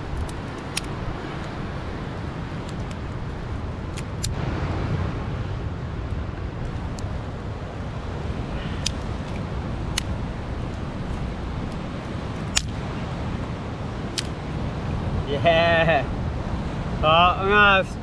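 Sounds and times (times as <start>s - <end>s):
wood fire crackling and popping: 0.0s - 4.3s
wind rumble: 0.0s - 18.0s
surf: 12.9s - 18.0s.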